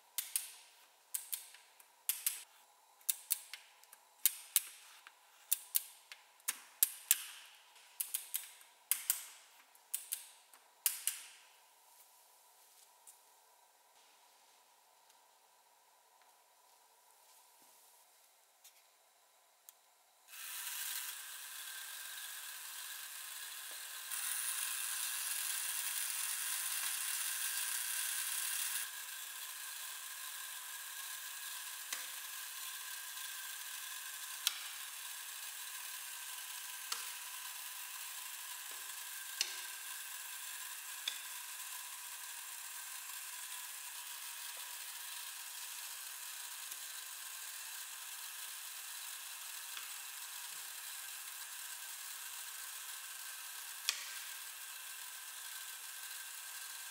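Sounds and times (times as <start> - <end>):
sharp mechanical clicks: 0.2 - 2.4, 3.0 - 4.8, 5.5 - 11.5
clockwork gears whirring: 20.3 - 56.9.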